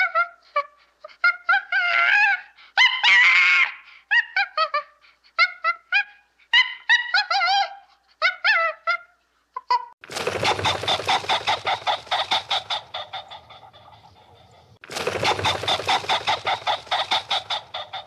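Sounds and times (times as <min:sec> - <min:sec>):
chicken clucking rapidly: 0:09.8 - 0:18.0.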